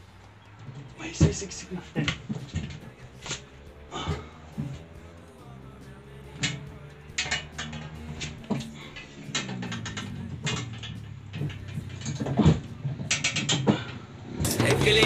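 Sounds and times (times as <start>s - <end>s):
bicycle rattling on wall hook: 6.4s - 15.0s.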